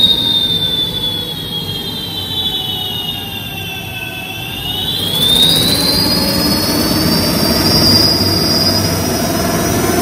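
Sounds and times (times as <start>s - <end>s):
electric motor whine: 4.7s - 10.0s.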